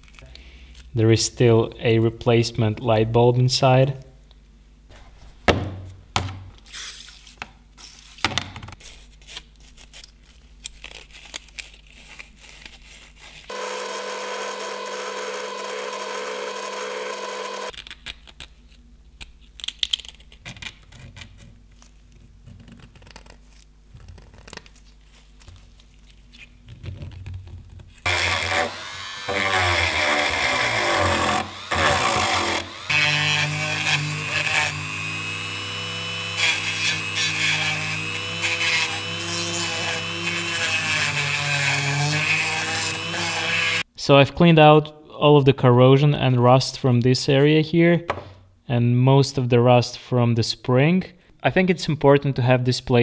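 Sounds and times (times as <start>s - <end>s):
power tool running: 13.5s - 17.7s, 28.0s - 43.8s.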